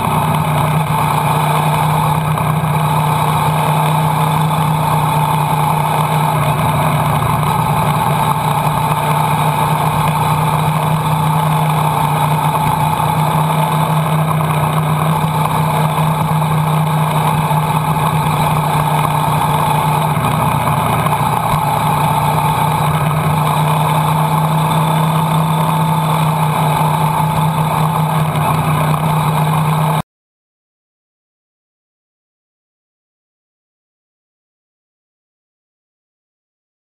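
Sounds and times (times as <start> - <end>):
motorcycle engine running: 0.0 - 30.0
wind and road noise: 0.0 - 30.0.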